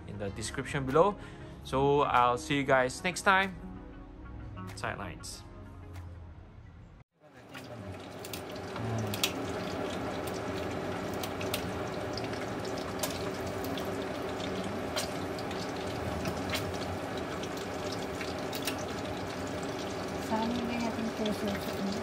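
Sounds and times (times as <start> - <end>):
running water: 7.3 - 22.0.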